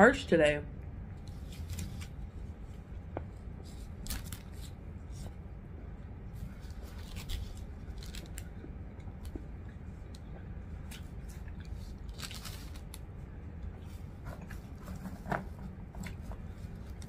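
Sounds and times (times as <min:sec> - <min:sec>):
steady low hum: 0:00.0 - 0:17.0
person chewing a sandwich: 0:01.2 - 0:17.0
paper wrapper crinkling: 0:01.3 - 0:02.2, 0:03.7 - 0:04.8, 0:06.5 - 0:08.5, 0:11.6 - 0:13.0.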